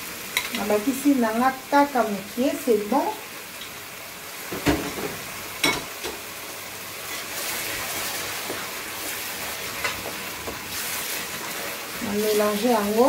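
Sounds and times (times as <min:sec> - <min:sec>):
food sizzling in pot: 0:00.0 - 0:13.0
wooden spoon stirring: 0:07.4 - 0:13.0.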